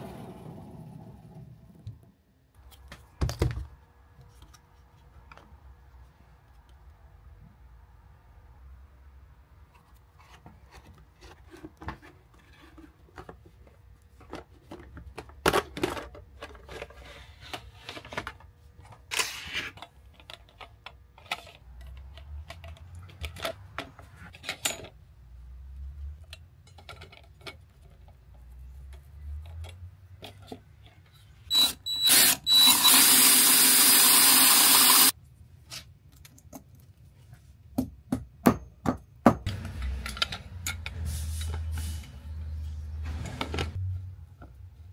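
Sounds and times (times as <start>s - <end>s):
clicks and handling noises: 9.6s - 25.0s, 26.0s - 31.4s
loud steady mechanical noise: 32.5s - 35.1s.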